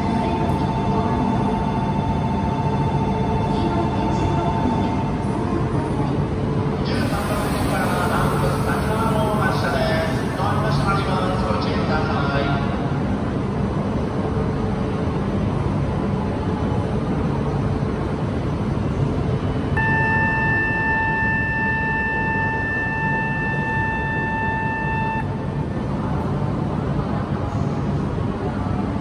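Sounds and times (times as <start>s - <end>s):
low hum beside train: 0.0s - 29.0s
electronic signal tone: 19.8s - 25.6s.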